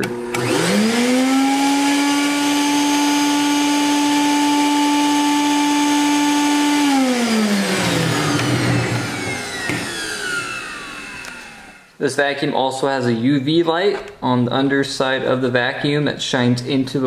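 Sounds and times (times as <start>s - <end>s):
vacuum motor whining: 0.0s - 11.9s.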